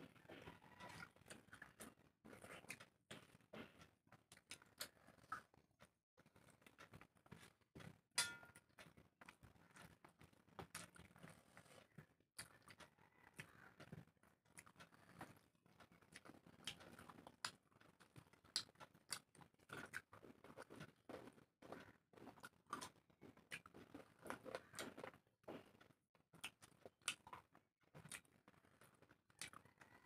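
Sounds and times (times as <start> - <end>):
wet chewing and lip smacks: 0.4 - 5.6, 8.8 - 29.9
fingers mixing rice on steel plate: 6.8 - 10.0.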